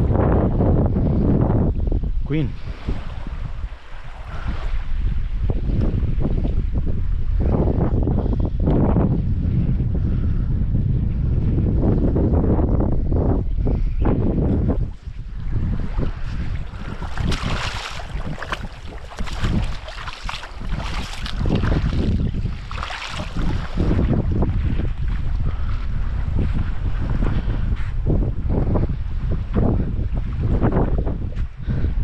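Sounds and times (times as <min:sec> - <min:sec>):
wind buffeting microphone: 0:00.0 - 0:32.0
small waves washing over sand: 0:14.8 - 0:27.9.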